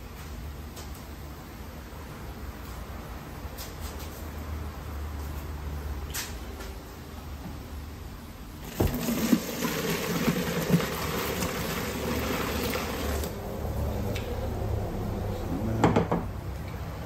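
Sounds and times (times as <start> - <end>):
liquid pouring into sink: 8.6 - 13.4
colander knock: 8.7 - 9.1, 15.8 - 16.3.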